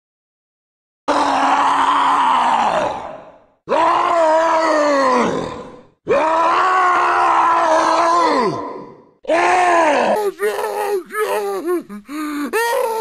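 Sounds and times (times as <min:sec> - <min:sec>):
low zombie groans: 0:09.3 - 0:13.0.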